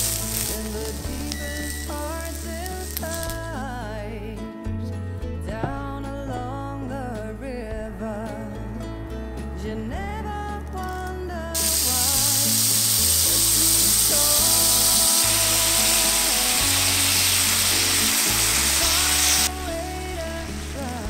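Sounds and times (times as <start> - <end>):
meat sizzling in hot oil: 0.0 - 3.5, 11.6 - 21.0
background music: 0.0 - 21.0.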